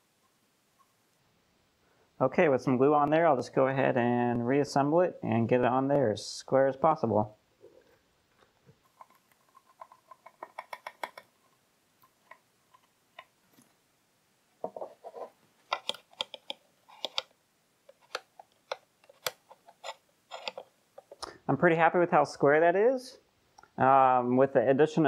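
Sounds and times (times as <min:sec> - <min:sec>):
parts knocking and tapping: 0:08.3 - 0:11.4, 0:14.6 - 0:17.3, 0:17.9 - 0:21.2.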